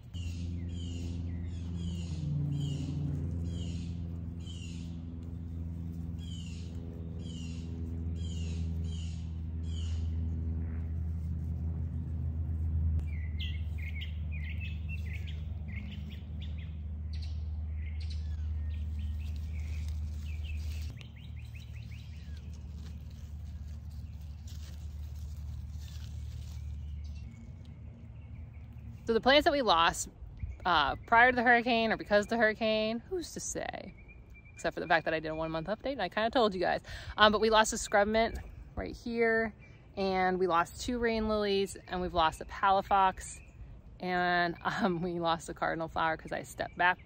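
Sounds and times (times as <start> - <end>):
birds calling: 0.0 - 11.0, 13.0 - 35.7
low mechanical hum: 0.0 - 47.0.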